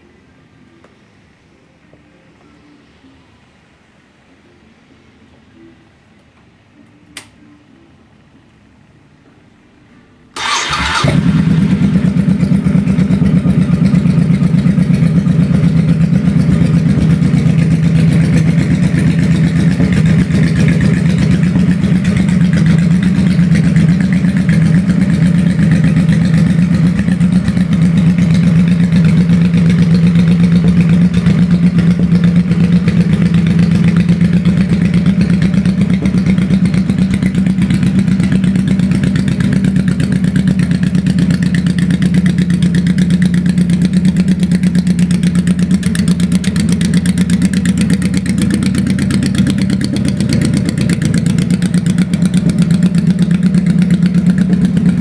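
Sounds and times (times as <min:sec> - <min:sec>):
electric starter cranking: 0:10.4 - 0:11.4
motorcycle engine idling: 0:10.4 - 0:55.0.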